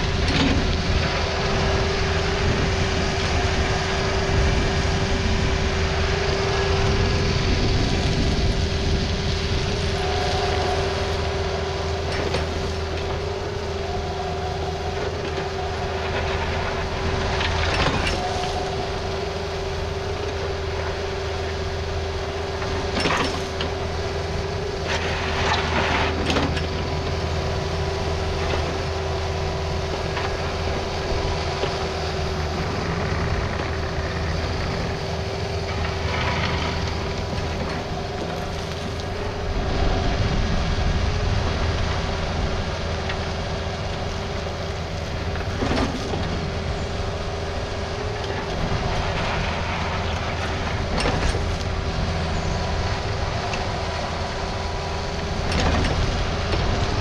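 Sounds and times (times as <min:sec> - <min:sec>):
excavator diesel engine whining: 0:00.0 - 0:57.0.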